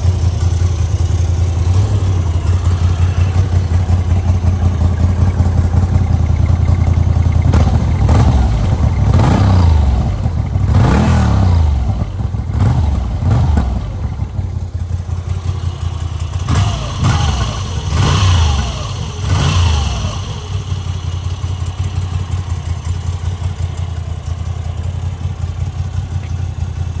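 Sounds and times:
motorcycle engine idling and revving: 0.0s - 27.0s.

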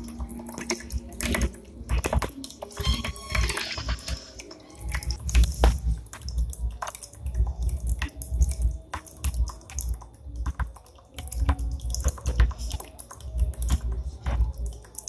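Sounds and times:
water dripping clicks: 0.0s - 15.0s
water trickling and splashing: 0.0s - 15.0s.

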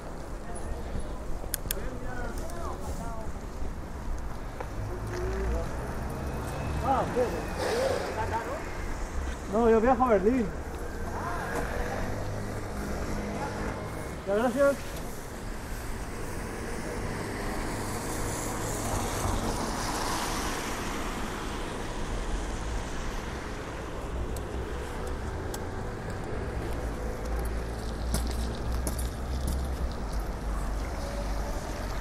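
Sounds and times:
steady road noise: 0.0s - 32.0s
car passing on wet road: 15.7s - 26.5s.

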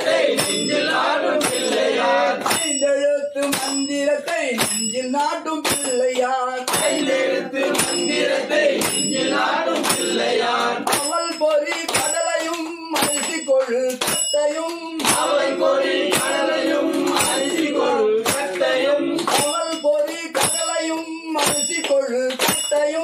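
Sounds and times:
devotional singing: 0.0s - 4.6s, 5.4s - 23.0s
small hand cymbals ringing: 2.5s - 7.0s.

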